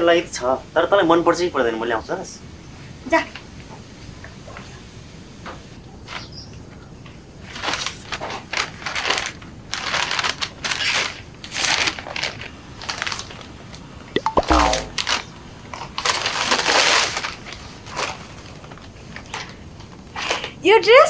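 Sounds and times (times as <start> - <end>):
paper bag rustling and crinkling: 7.5 - 13.5.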